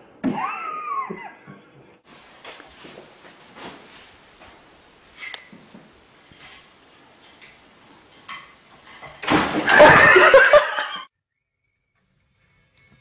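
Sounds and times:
crash of objects knocked over: 9.0 - 10.4.

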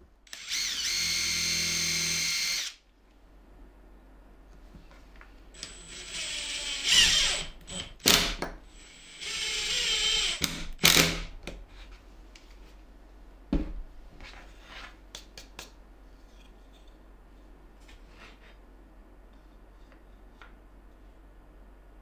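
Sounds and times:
impact driver drilling into plywood: 0.3 - 2.8, 5.6 - 11.3.

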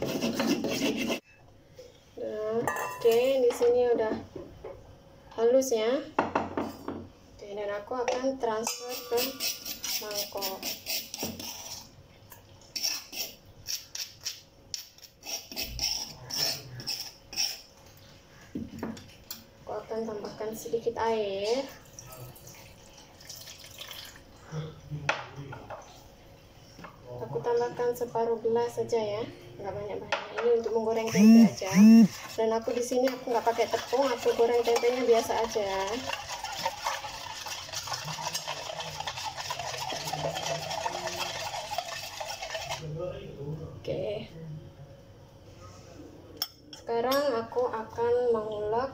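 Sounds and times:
scraping stone mortar: 0.0 - 1.2, 8.8 - 11.9
water swishing in metal bowl: 8.7 - 12.0, 32.1 - 42.9.

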